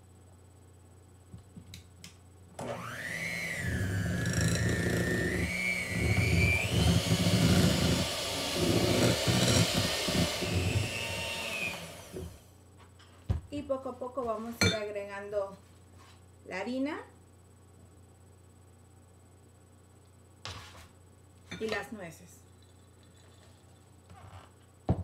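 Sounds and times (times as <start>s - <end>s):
electric hand mixer whining: 2.6s - 12.4s.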